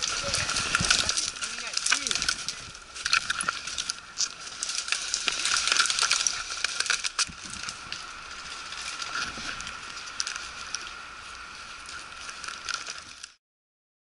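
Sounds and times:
gear rattling clicks: 0:00.0 - 0:09.2
crunching footsteps: 0:00.0 - 0:13.4.

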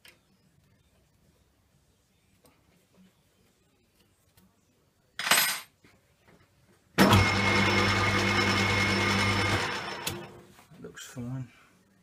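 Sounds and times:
metal lathe motor humming: 0:07.0 - 0:10.3.

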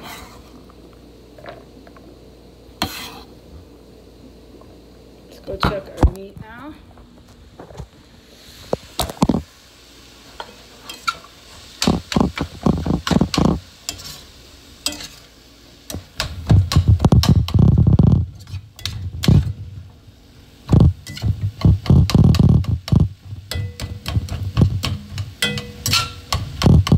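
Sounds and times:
spatula scraping a metal pan: 0:00.0 - 0:00.5, 0:02.8 - 0:03.3, 0:10.4 - 0:15.3, 0:16.7 - 0:19.6, 0:23.5 - 0:26.9.

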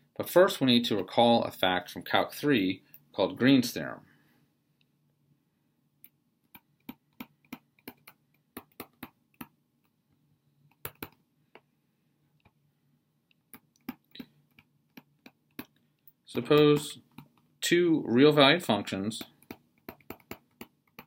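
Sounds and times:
stylus tapping on tablet screen: 0:06.0 - 0:10.0, 0:10.6 - 0:11.7, 0:13.4 - 0:17.5, 0:19.2 - 0:21.0.

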